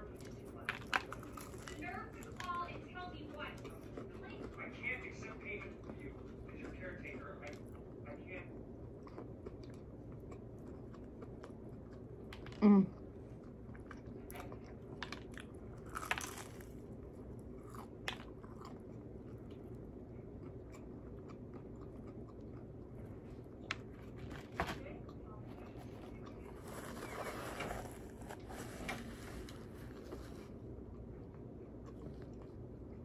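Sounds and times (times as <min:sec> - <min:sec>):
chewing crispy fried chicken: 0:00.0 - 0:33.0.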